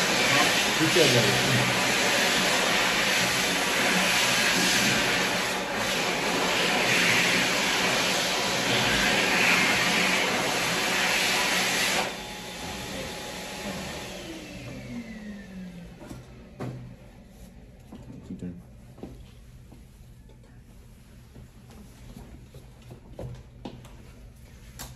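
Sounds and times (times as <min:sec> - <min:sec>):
hand dryer blowing air: 0:00.0 - 0:17.0.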